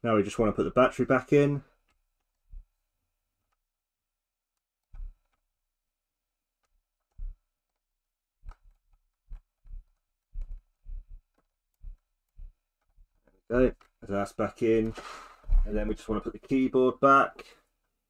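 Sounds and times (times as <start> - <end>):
plastic knocks and clicks: 8.4 - 14.0.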